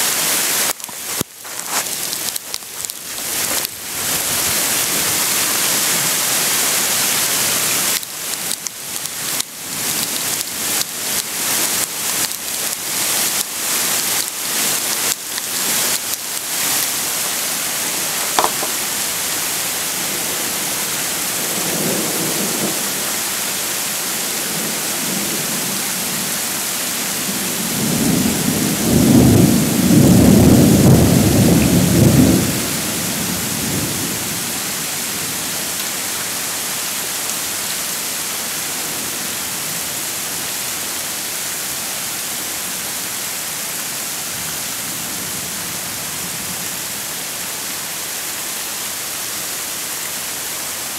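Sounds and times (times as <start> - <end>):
hail pattering: 0.0 - 20.4
thunder rumbling: 27.7 - 34.3.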